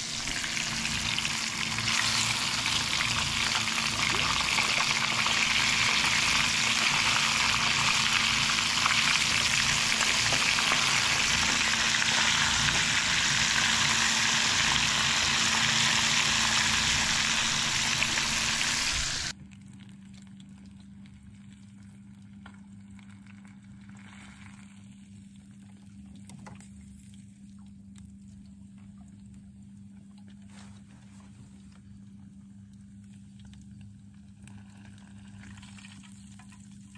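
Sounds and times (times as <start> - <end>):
fish sizzling in hot oil: 0.0 - 19.4, 34.3 - 36.9.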